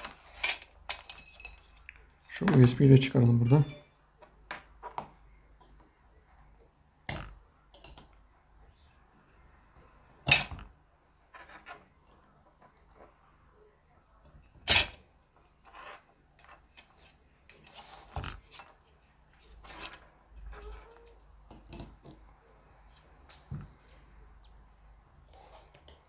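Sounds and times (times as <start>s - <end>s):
metal parts scraping: 0.0s - 2.5s.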